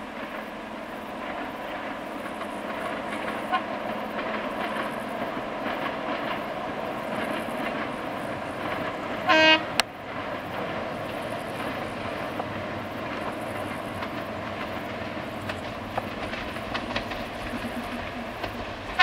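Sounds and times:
diesel locomotive running: 0.0 - 19.0
wheel-on-rail noise: 0.0 - 19.0
train horn blast: 9.2 - 9.8.

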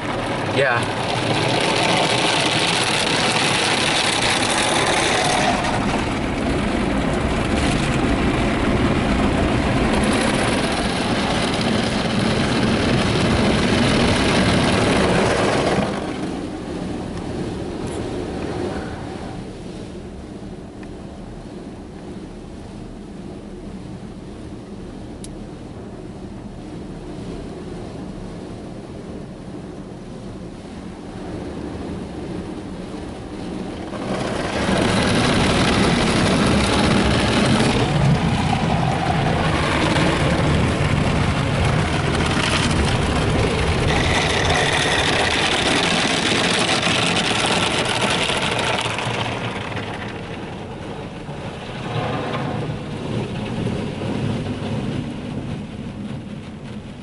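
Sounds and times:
car wash water jets spraying: 0.0 - 22.2, 25.8 - 57.0.

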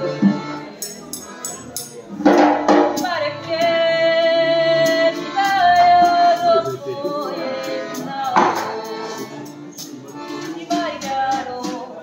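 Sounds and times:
accordion folk tune: 0.0 - 12.0
sharp drum hits: 2.2 - 3.0.

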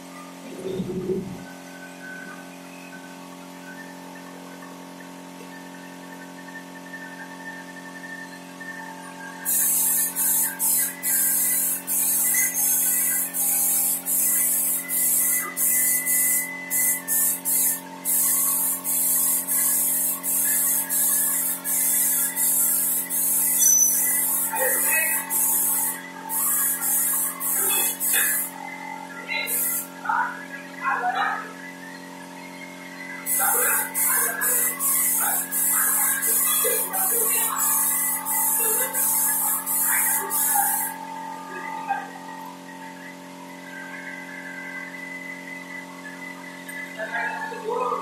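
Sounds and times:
steady hum: 0.0 - 4.8, 5.4 - 48.0
spray gun hissing: 9.5 - 28.5, 29.5 - 29.9, 33.3 - 41.0.

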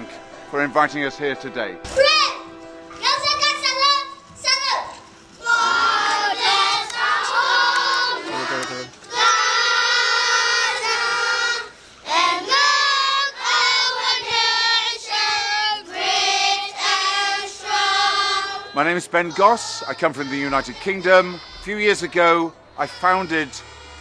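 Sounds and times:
boys singing in unison: 5.4 - 24.0.

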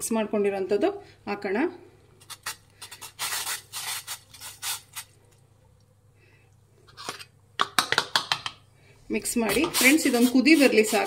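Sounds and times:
spoon scraping plastic bowl: 9.5 - 11.0.

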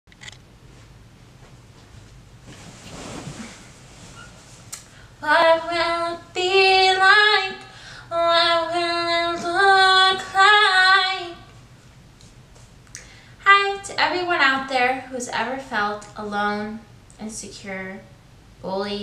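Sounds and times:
soft rustle: 0.6 - 4.8
woman singing unaccompanied: 5.2 - 11.5, 13.4 - 18.0.

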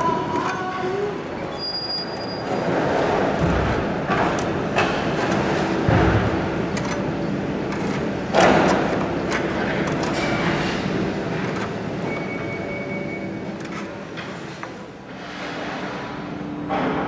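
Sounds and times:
wire scraping and grinding: 0.0 - 16.1.

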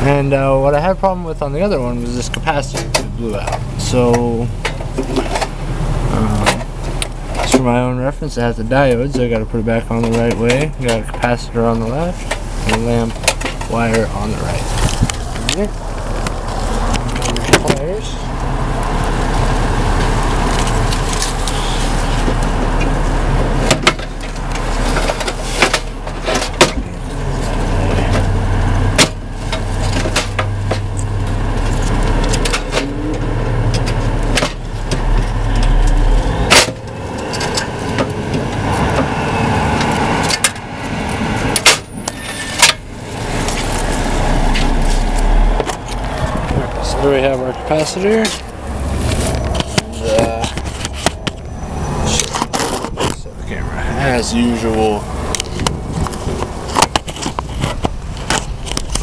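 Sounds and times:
sharp clicks and knocks: 2.2 - 5.6, 6.4 - 7.8, 8.9 - 18.9, 28.9 - 47.0, 47.6 - 53.3, 55.2 - 59.0
wind buffeting microphone: 14.0 - 17.2, 42.9 - 59.0.

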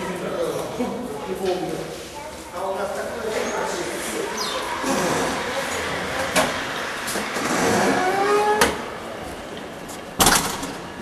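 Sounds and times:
heavy door creaking open: 4.4 - 9.1.

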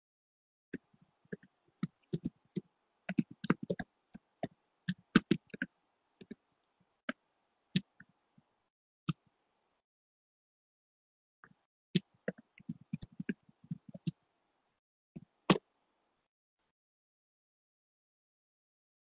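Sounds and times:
keyboard typing: 0.8 - 6.4, 12.0 - 14.2.

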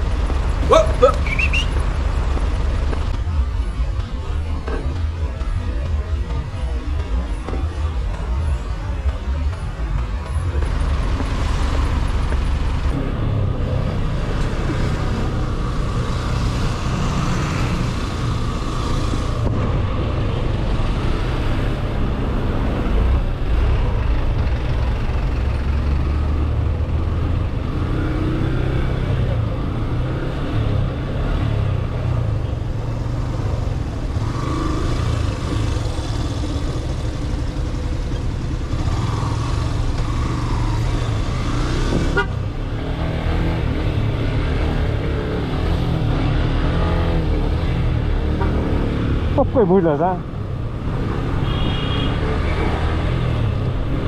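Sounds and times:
traffic rumble: 0.0 - 54.0
car horns honking: 0.7 - 1.8, 42.1 - 42.4, 51.4 - 52.2.

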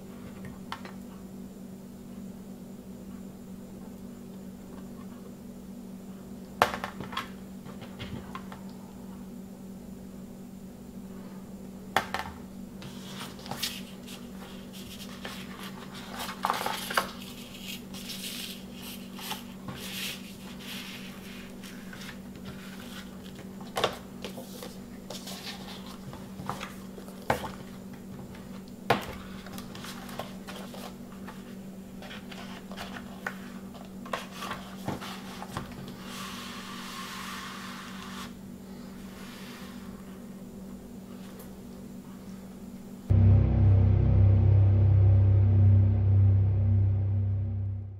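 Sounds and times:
paper sleeve rustling and sliding: 12.8 - 23.4, 24.3 - 26.8, 34.2 - 38.4
steady low hum: 42.8 - 47.9.

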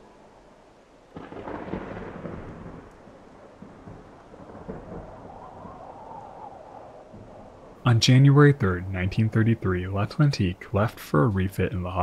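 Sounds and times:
thunder rumbling: 1.1 - 10.6.

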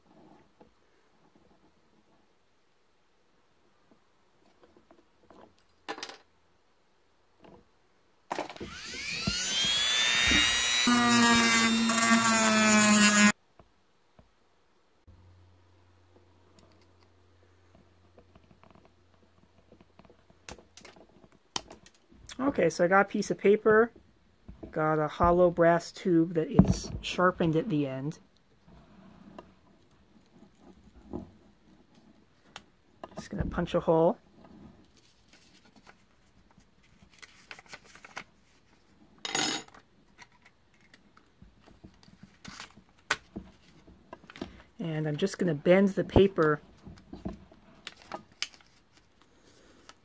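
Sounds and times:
paper rustling and scraping: 34.8 - 38.9, 42.0 - 44.4, 46.3 - 50.0.

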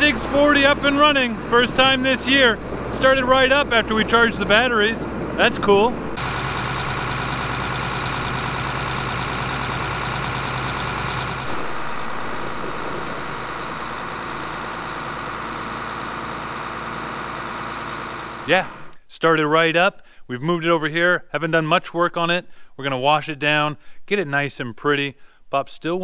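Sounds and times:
diesel tractor engine idling: 0.0 - 19.0.

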